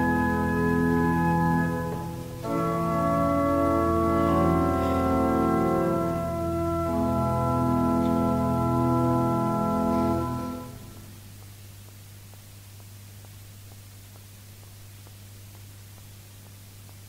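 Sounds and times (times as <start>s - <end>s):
church organ sustained chords: 0.0s - 11.2s
faint tape hiss: 0.0s - 17.0s.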